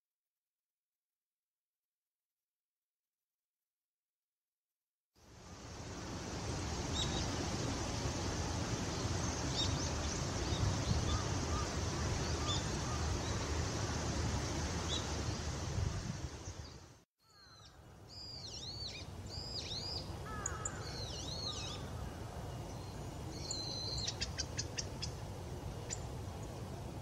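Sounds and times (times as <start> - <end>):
steady rushing noise: 5.2 - 17.0.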